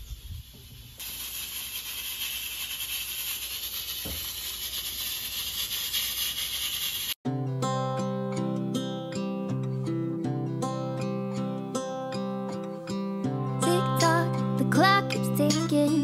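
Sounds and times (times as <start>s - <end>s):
steady hissing: 0.0s - 7.2s
acoustic guitar music: 7.2s - 16.0s.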